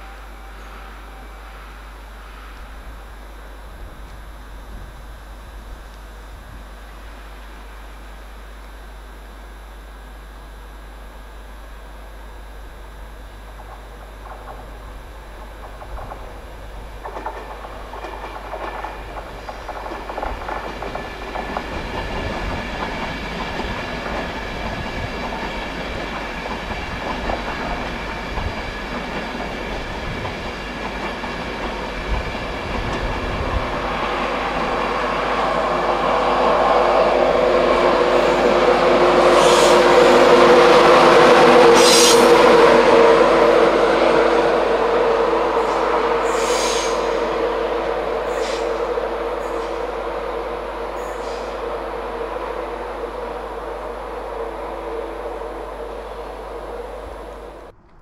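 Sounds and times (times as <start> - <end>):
electric locomotive hum: 0.0 - 58.0
train wheels clattering over rail joints: 15.3 - 33.2.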